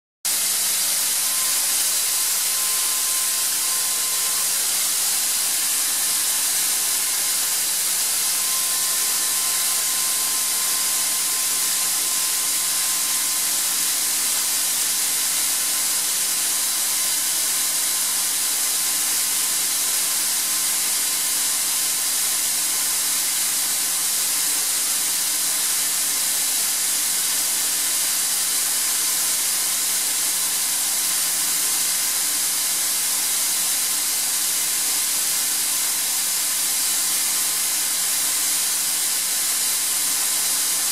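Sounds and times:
faint steady whine: 0:00.3 - 0:21.5
air compressor hissing: 0:00.3 - 0:40.9.

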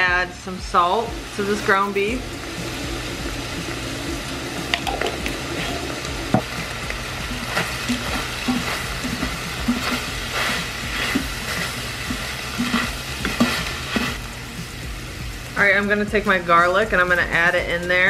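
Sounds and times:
meat and onion sizzling: 0:00.0 - 0:18.0
utensil scraping pot bottom: 0:07.2 - 0:14.2.

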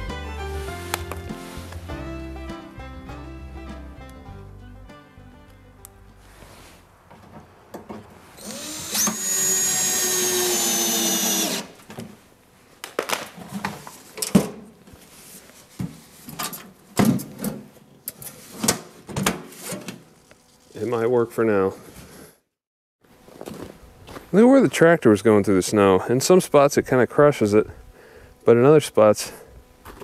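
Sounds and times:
cordless drill driving a screw: 0:08.4 - 0:11.8.

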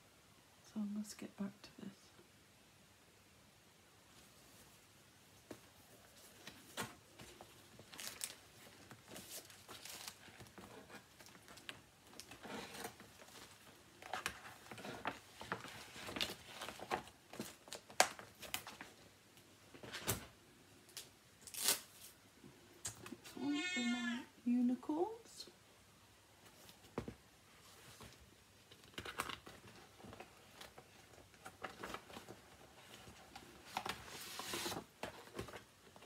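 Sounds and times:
plastic bags and fabric rustling: 0:04.1 - 0:20.4.

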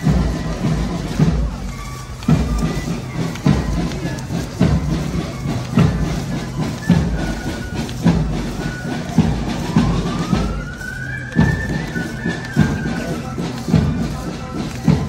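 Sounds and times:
marching band music: 0:00.0 - 0:15.0
siren-like wail: 0:08.6 - 0:12.1.

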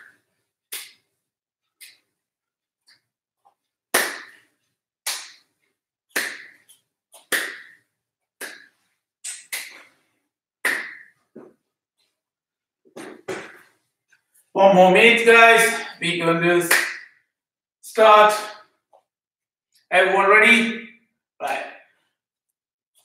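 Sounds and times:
sharp hand claps: 0:03.9 - 0:04.4, 0:05.0 - 0:05.5, 0:06.1 - 0:07.8, 0:08.4 - 0:09.9, 0:10.6 - 0:11.2, 0:16.7 - 0:17.1.

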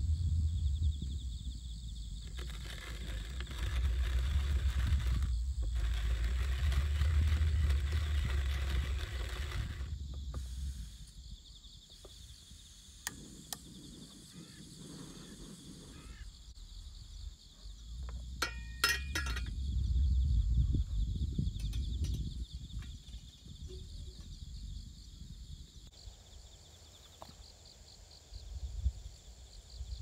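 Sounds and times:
coffee grinder crunching beans: 0:02.2 - 0:10.5
gas canister stove clinking: 0:18.4 - 0:19.5.

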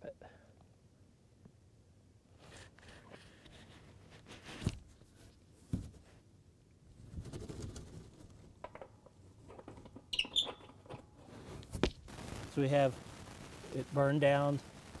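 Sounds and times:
rustling and small clicks: 0:07.0 - 0:12.2.

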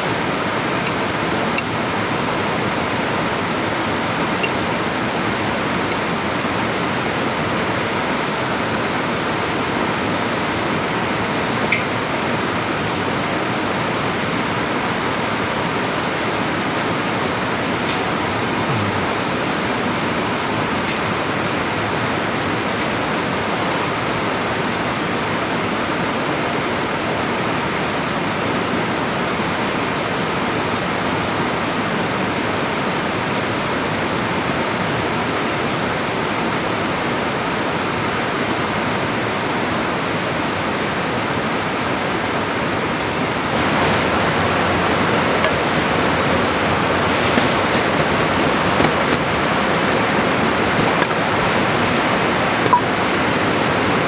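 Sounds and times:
rushing noise: 0:17.9 - 0:21.0.

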